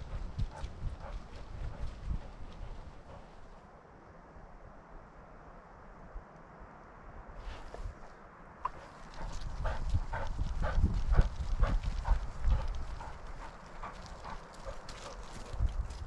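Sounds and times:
dog footfalls on dirt trail: 0.0s - 3.6s, 8.6s - 16.0s.

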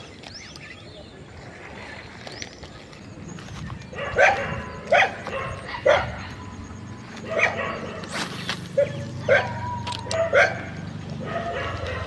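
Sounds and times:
dog barking: 4.0s - 6.3s, 7.2s - 8.1s, 8.8s - 12.0s.

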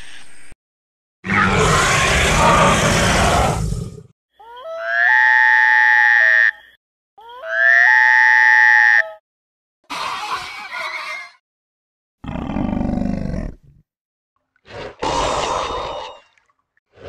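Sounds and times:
dinosaur roar: 1.2s - 4.1s, 12.2s - 13.7s, 14.7s - 16.2s
long rising dinosaur calls: 1.3s - 4.0s.

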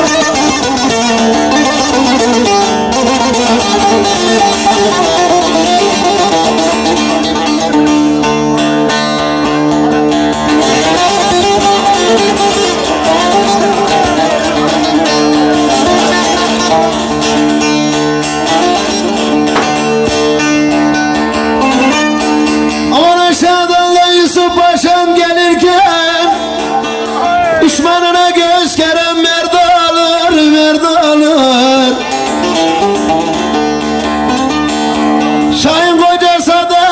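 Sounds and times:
steady held notes: 0.0s - 24.4s
long-necked lute played fast: 0.0s - 36.9s
man singing: 22.9s - 32.5s, 35.5s - 36.9s.

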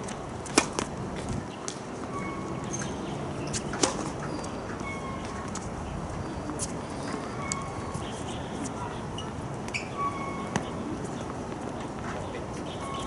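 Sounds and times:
racket hitting tennis ball: 0.0s - 0.9s, 3.5s - 4.2s
tennis ball bouncing: 0.0s - 0.9s, 9.7s - 10.8s.

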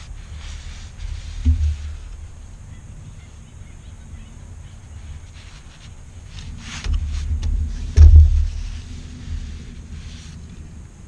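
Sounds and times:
low rumble: 6.1s - 11.0s.

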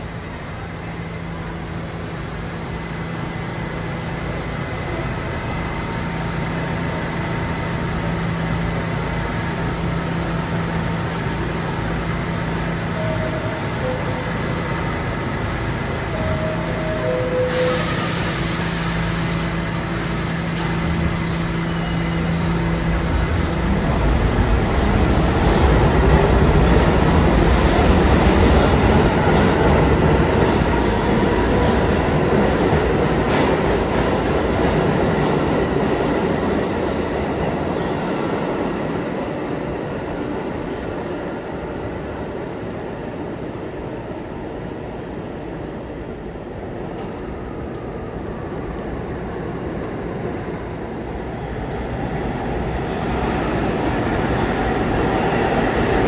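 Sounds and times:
train rumble: 0.0s - 56.0s
hiss: 17.5s - 21.4s.

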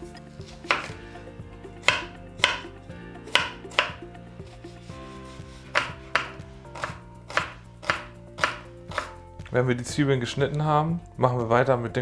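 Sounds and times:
knife knocking on chopping board: 0.7s - 0.9s, 1.8s - 2.7s, 3.3s - 4.0s, 5.7s - 6.4s.

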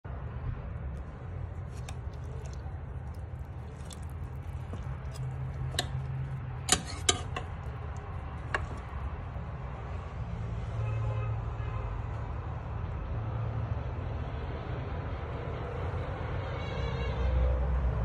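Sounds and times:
stew simmering hum: 0.5s - 10.2s.

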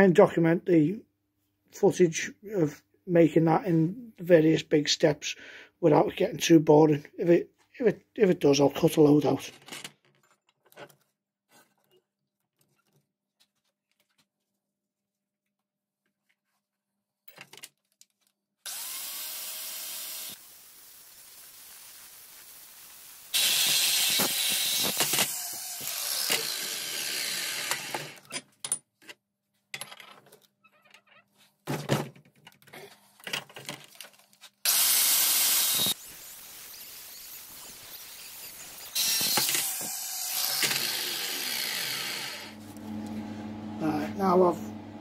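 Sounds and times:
angle grinder cutting steel: 18.7s - 28.2s, 34.7s - 44.8s.

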